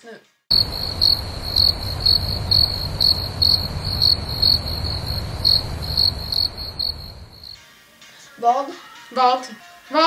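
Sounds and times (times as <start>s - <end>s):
crickets chirping: 0.5s - 7.6s
low rumble: 0.5s - 7.6s.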